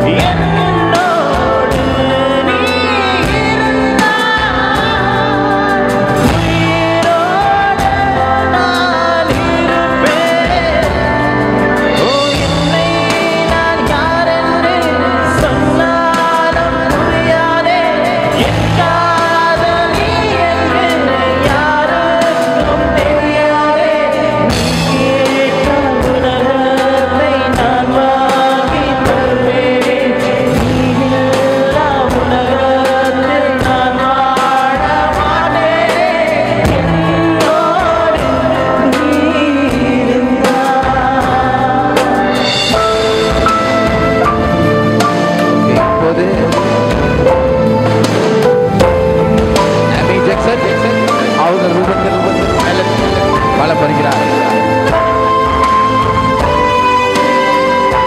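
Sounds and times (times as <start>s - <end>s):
backing music with steady beat: 0.0s - 58.0s
person singing into a microphone: 0.0s - 58.0s.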